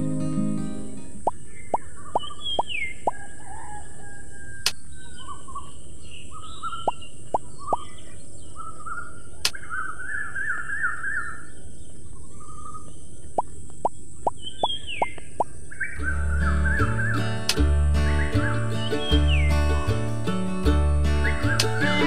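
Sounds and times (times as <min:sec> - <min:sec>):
birds chirping and trilling: 0:01.2 - 0:20.1, 0:21.0 - 0:22.0
sharp clicks: 0:17.4 - 0:17.6.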